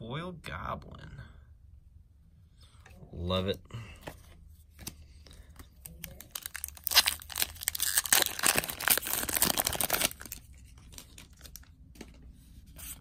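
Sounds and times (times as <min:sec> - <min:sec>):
foil wrapper tearing and crinkling: 0:05.8 - 0:11.7
faint handling of wrapper: 0:05.8 - 0:12.2.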